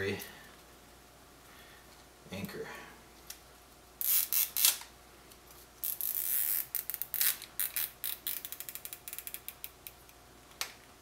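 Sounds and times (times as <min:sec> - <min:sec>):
zip tie ratchet clicks: 0:04.0 - 0:04.8, 0:05.8 - 0:10.0.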